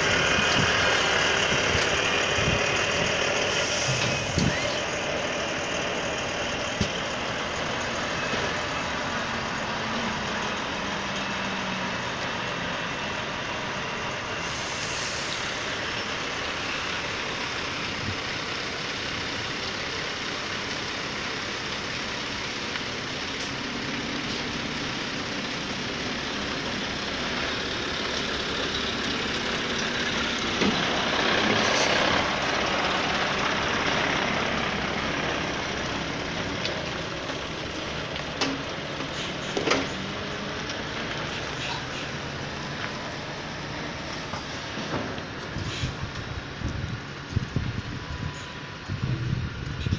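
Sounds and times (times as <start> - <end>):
diesel truck engine running: 0.0 - 49.9
short air hisses: 3.5 - 4.8, 14.4 - 15.8.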